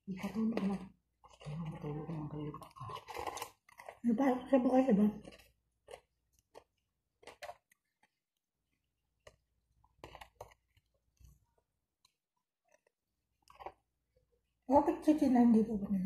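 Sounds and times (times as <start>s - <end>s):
person chewing with quiet crunches: 0.1s - 14.7s.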